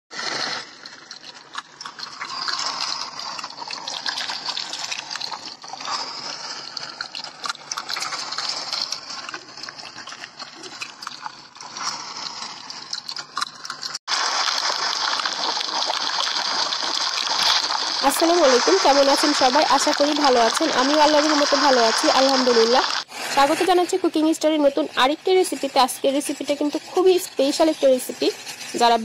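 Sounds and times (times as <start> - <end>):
rushing water: 13.8 - 23.4.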